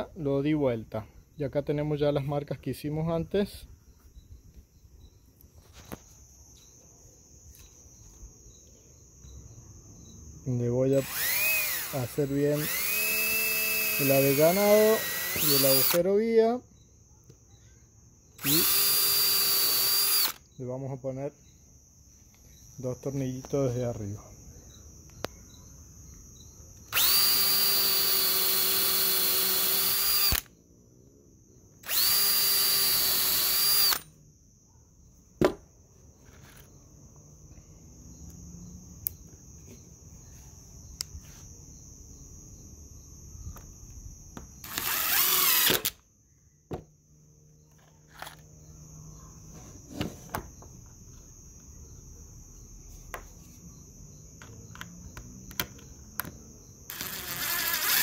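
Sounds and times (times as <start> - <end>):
cordless drill drilling into wood: 11.0 - 16.1, 18.4 - 20.4, 26.9 - 30.5, 31.8 - 34.0, 44.6 - 46.0, 56.9 - 58.0.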